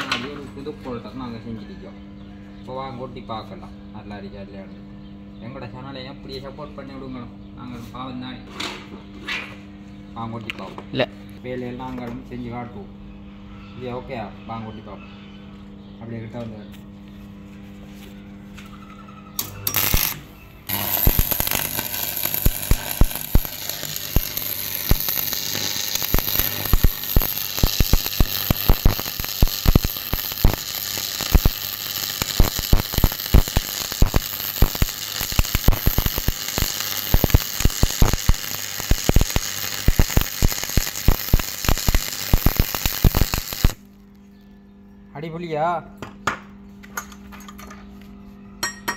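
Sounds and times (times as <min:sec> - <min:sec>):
welding arc hissing and crackling: 0:19.4 - 0:43.9
electrode striking: 0:19.7 - 0:43.9.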